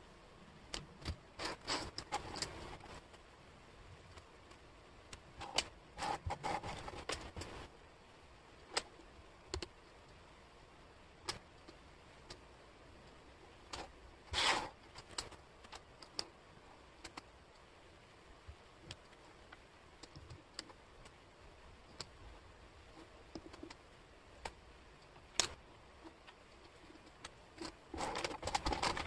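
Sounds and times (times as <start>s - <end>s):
wooden puzzle pieces clicking: 25.2s - 29.0s.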